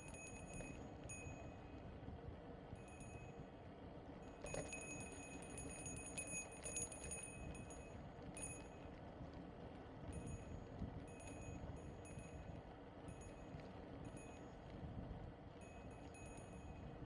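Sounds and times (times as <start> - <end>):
bicycle freewheel ticking: 4.4 - 17.0.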